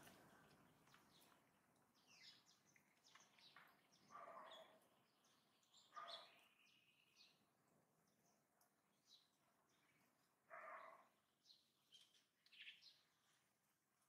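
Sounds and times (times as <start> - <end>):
bird chirps and calls: 2.0 - 7.4.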